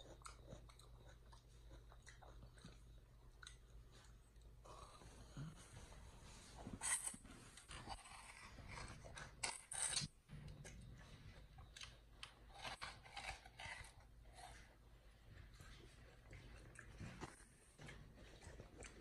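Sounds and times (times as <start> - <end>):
chimpanzee chewing watermelon: 10.5 - 19.0.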